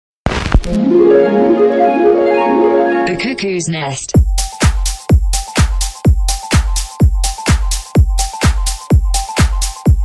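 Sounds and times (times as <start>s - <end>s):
electronic dance music: 0.7s - 10.0s
kick drum: 4.2s - 10.0s.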